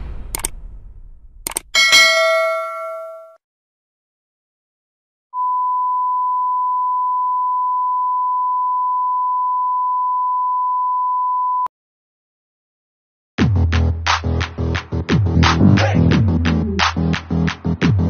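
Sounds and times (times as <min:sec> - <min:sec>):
click: 0:00.3 - 0:00.6, 0:01.4 - 0:01.7
electronic dance music: 0:14.2 - 0:18.0.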